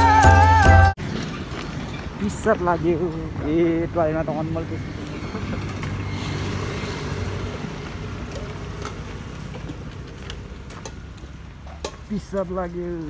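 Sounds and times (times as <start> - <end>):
small motorbike engine humming: 3.0 - 11.5.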